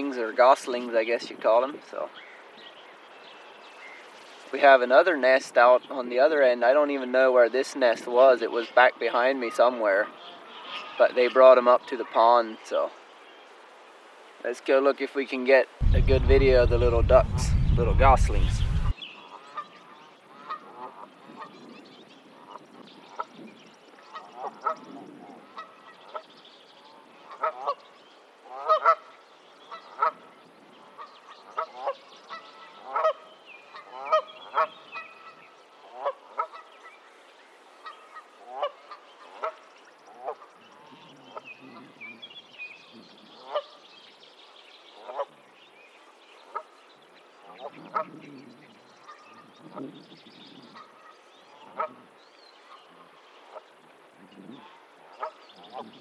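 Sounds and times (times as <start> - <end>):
geese honking: 15.8 - 19.6, 28.4 - 29.1, 30.9 - 36.9, 37.8 - 42.0.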